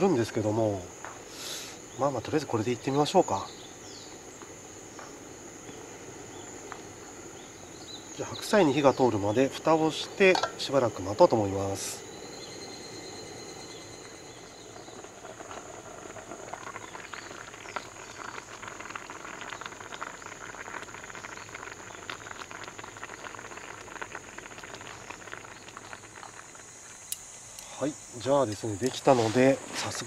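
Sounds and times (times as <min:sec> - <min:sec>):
insects chirring: 0:00.0 - 0:30.0
pot bubbling: 0:00.0 - 0:30.0.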